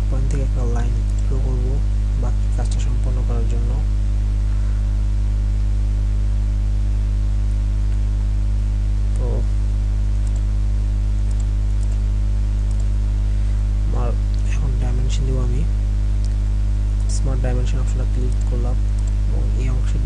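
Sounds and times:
electrical mains hum: 0.0 - 20.0
computer mouse clicks: 1.0 - 1.3, 10.2 - 10.5, 11.2 - 12.0, 12.6 - 12.9, 18.2 - 19.2.

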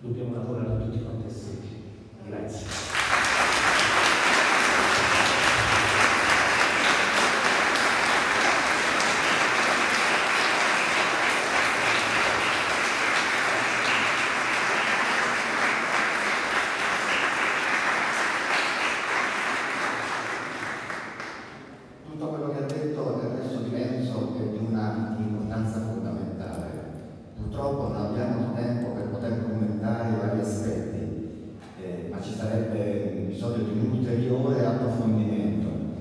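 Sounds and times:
audience applauding: 2.7 - 21.7.

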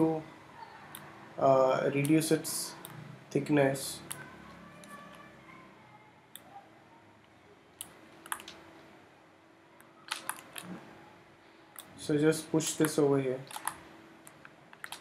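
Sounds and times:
faint steady hum: 0.0 - 15.0
mouse and keyboard clicks: 7.8 - 8.6, 10.1 - 10.8, 12.7 - 15.0.

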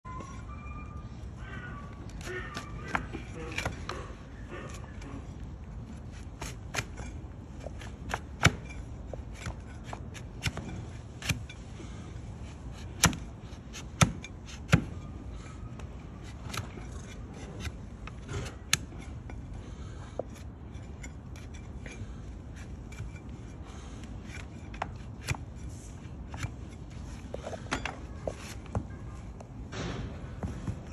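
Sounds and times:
knife scraping hoof: 1.6 - 29.0.

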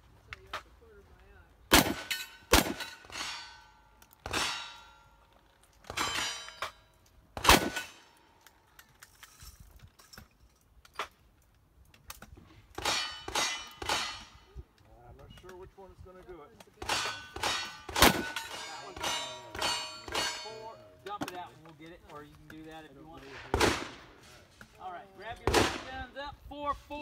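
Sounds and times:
gunshots: 1.7 - 3.6, 4.2 - 4.9, 7.4 - 8.1, 12.8 - 14.3, 16.8 - 20.9, 23.2 - 24.3, 25.4 - 26.0
steel target clanging: 1.8 - 5.3, 5.9 - 8.2, 12.8 - 14.5, 16.8 - 21.5.

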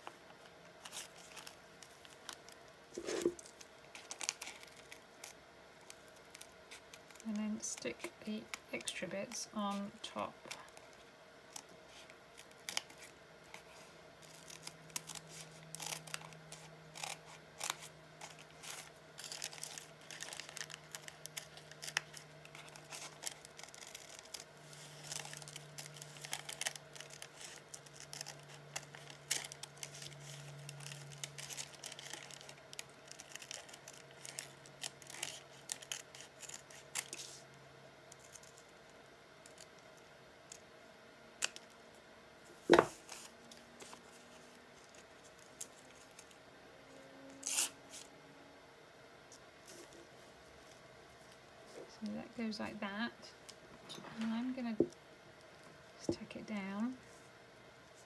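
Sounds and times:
paper rustling: 3.0 - 7.2.

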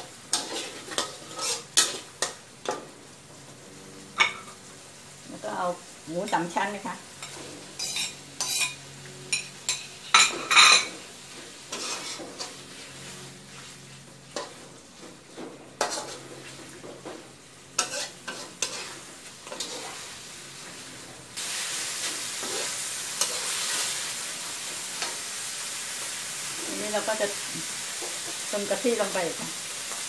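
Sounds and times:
low sizzle: 0.0 - 30.0
metal spatula scraping a wok: 0.3 - 2.4, 7.2 - 16.7, 17.8 - 25.3.

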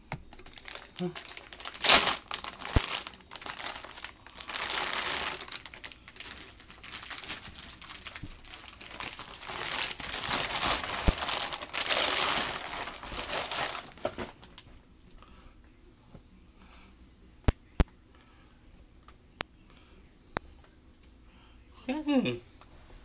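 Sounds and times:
plastic bag crinkling: 0.3 - 14.6.

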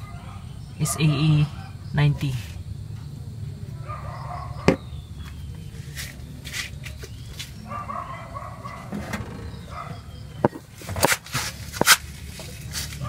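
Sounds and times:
dog barking: 0.0 - 1.8, 3.8 - 4.8, 7.6 - 8.9, 9.7 - 10.1.

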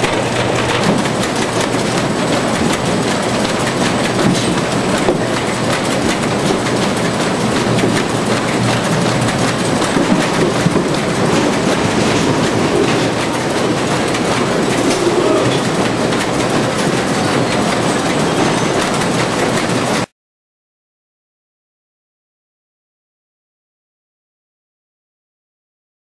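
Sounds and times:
sorting machine clattering: 0.0 - 20.1.

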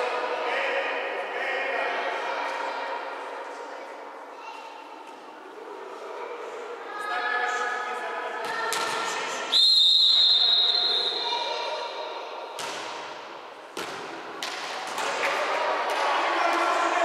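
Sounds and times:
referee's whistle blast: 9.5 - 11.3
volleyball thuds: 12.5 - 16.6.

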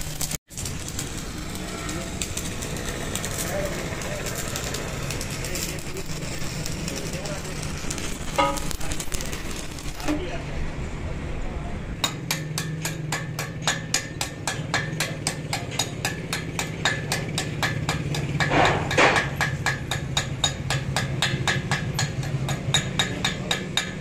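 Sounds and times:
hammer tapping metal: 8.3 - 9.2, 12.0 - 24.0.

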